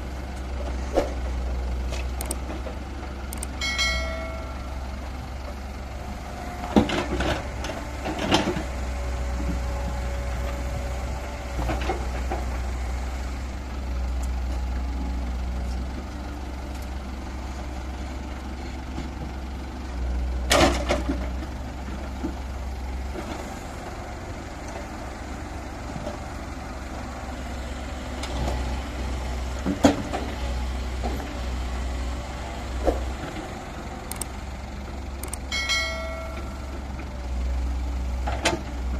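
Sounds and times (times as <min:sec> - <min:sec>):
diesel engines rumbling: 0:00.0 - 0:38.9
excavator bucket clanking: 0:35.2 - 0:37.1.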